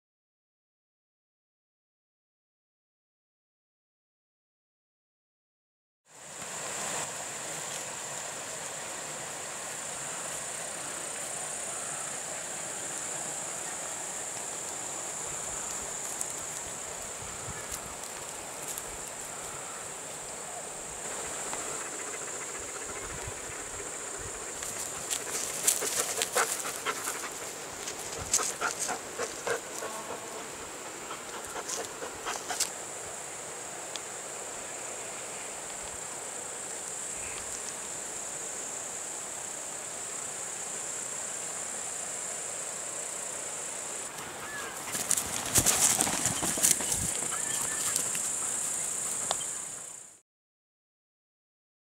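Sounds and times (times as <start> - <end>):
steady high hiss: 6.1 - 50.2
rustling on dry forest litter: 6.4 - 32.9, 44.0 - 50.0
dog panting: 24.9 - 32.7.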